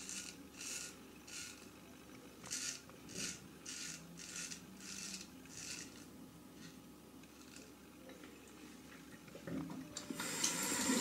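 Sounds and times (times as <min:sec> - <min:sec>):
straight razor scraping stubble: 0:02.4 - 0:06.1.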